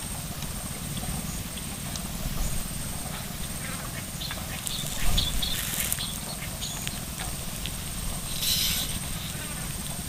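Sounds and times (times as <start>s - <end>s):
wind rumble on microphone: 0.0s - 10.0s
scattered chirps and clicks: 0.3s - 10.0s.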